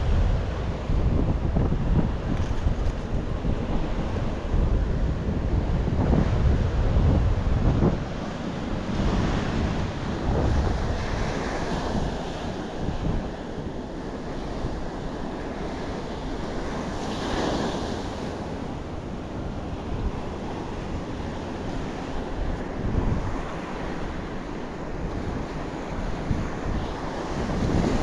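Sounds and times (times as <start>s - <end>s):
ocean surf breaking: 0.0s - 28.0s
wind rumbling on microphone: 0.0s - 28.0s.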